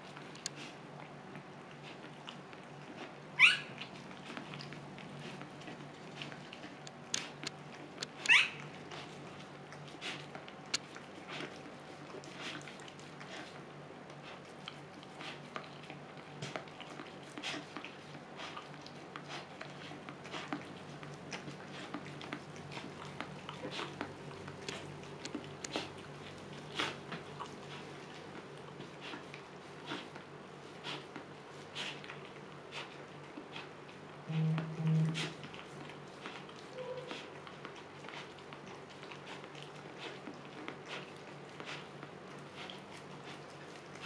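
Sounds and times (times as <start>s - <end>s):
dog licking wetly: 0.0s - 34.2s, 35.1s - 44.0s
steady low hum: 0.0s - 44.0s.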